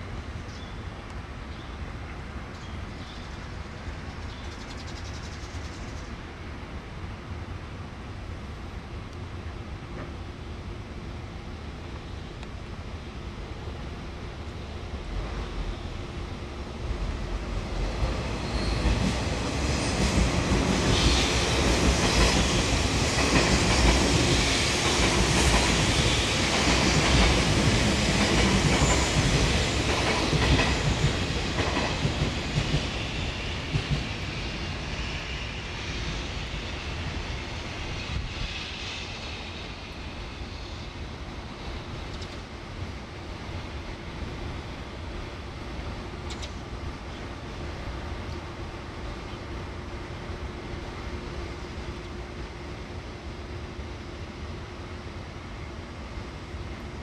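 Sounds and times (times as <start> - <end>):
train wheels clattering: 18.4 - 34.2.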